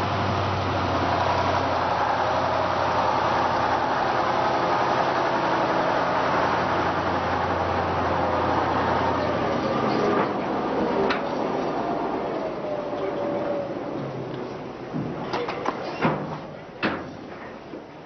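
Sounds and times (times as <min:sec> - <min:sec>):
large engine running: 0:00.0 - 0:15.2.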